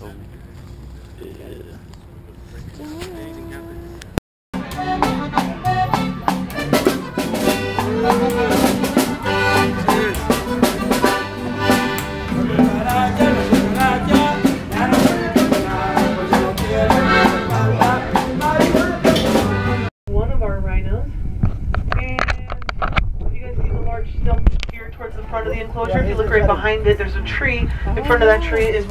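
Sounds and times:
snare drum beat: 4.6 - 19.5
accordion melody: 4.6 - 19.9
plucked upright bass: 4.6 - 19.9.

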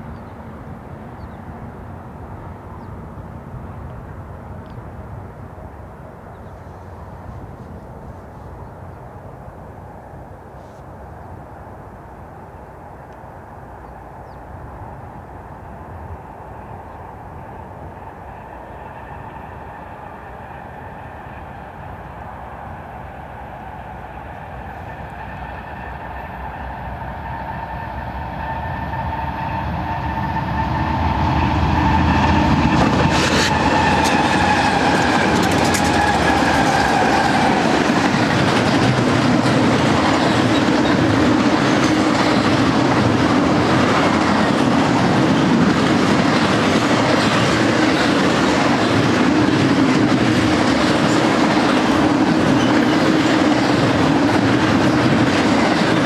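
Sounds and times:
diesel locomotives passing: 0.0 - 56.0
train cars clattering on rails: 32.2 - 56.0.

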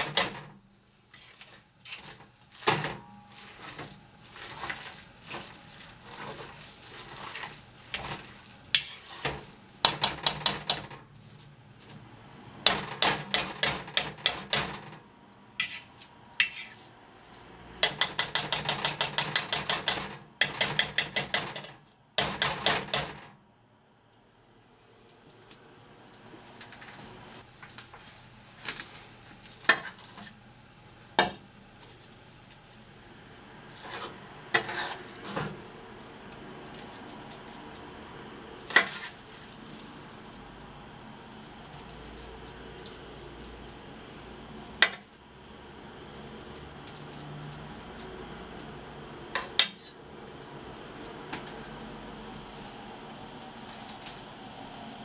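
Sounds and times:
spoon scraping pan: 1.1 - 10.0, 15.6 - 16.9, 33.7 - 35.5, 38.7 - 39.3.

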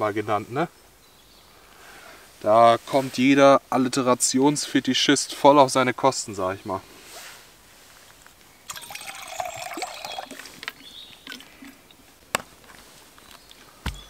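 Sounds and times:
water pouring into steel mug: 8.7 - 12.0
handling sounds: 10.4 - 14.0.

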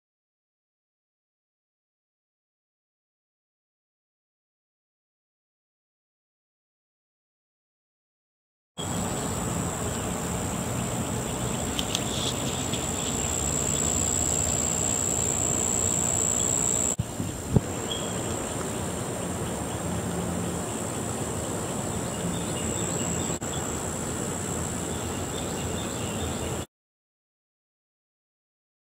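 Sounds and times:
faint chirps: 8.8 - 19.8
high-pitched insect trill: 8.8 - 26.5.

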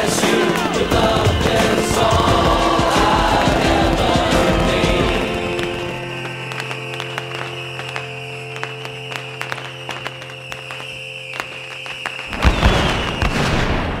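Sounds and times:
held music chord: 0.0 - 10.8
sharp pops: 0.0 - 13.8
firework burst booming: 0.0 - 14.0.

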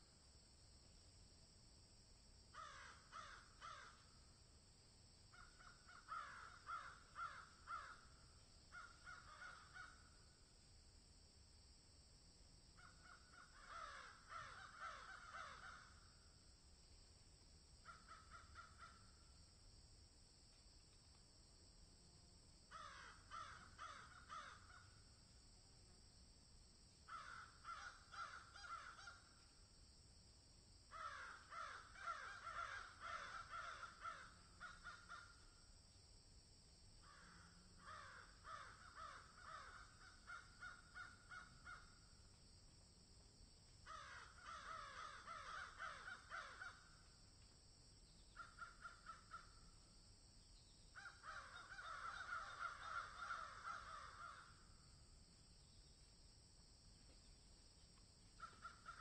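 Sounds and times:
high background hiss: 0.0 - 59.0
crows cawing: 2.5 - 4.1, 5.3 - 10.1, 12.8 - 16.1, 17.8 - 19.1, 22.7 - 25.0, 27.1 - 29.4, 30.9 - 35.4, 37.0 - 42.0, 43.8 - 47.0, 48.4 - 49.5, 51.0 - 54.6, 58.4 - 59.0.

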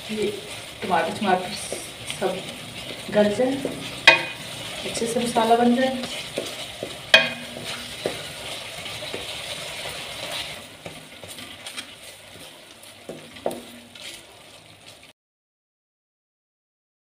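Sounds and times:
masala sizzling in oil: 0.0 - 15.1
spatula stirring: 0.0 - 15.1
spatula knocking against pan: 3.6 - 4.5, 6.0 - 8.3.

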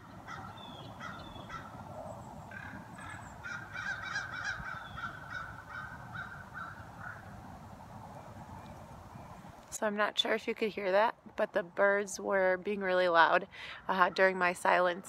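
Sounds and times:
birds calling and chirping: 0.0 - 7.4
freeway traffic rumble: 0.0 - 15.0.

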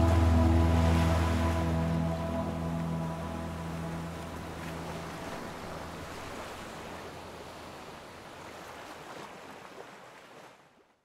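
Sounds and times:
ocean surf breaking: 0.0 - 8.1.

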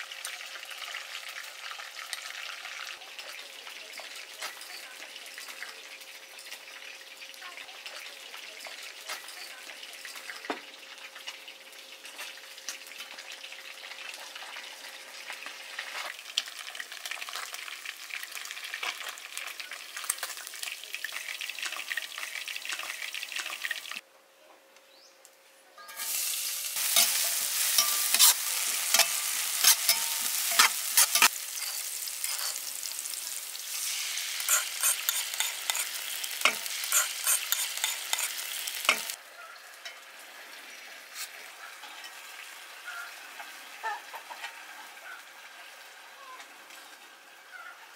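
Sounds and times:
hot oil sizzling: 0.0 - 24.0, 25.9 - 47.9
spatula scraping pan: 26.8 - 32.7, 34.2 - 39.2.

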